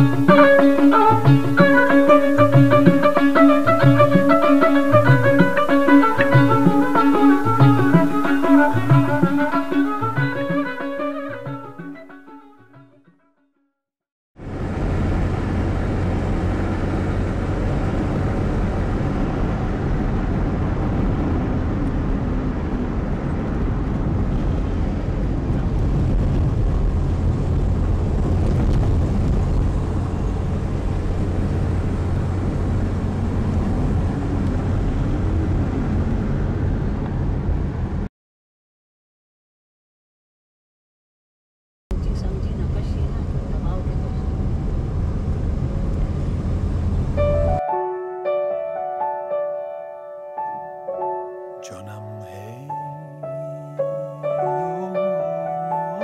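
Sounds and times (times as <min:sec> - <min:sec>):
vehicle engine and road noise: 0:00.0 - 0:12.0, 0:14.4 - 0:38.1, 0:41.9 - 0:47.6.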